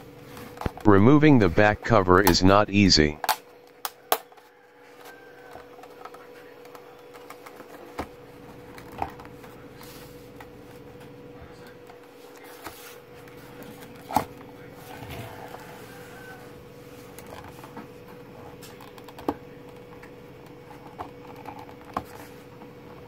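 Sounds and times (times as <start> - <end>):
faint steady hum: 0.7 - 3.2.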